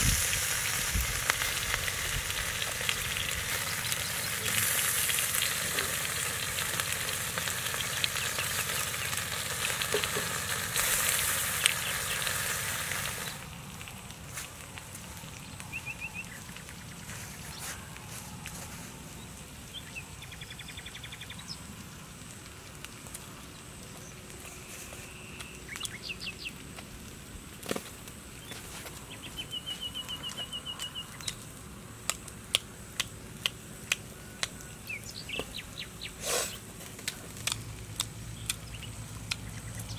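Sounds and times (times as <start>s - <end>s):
fish sizzling on hot stone: 0.0s - 20.4s
outdoor ambience: 0.0s - 39.9s.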